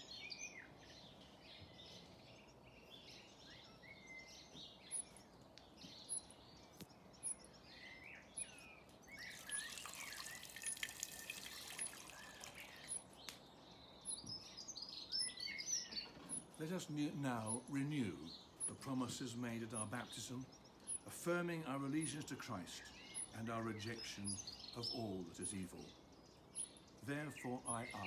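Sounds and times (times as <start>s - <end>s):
birds singing: 0.0s - 28.0s
water poured from a jug: 9.3s - 12.9s.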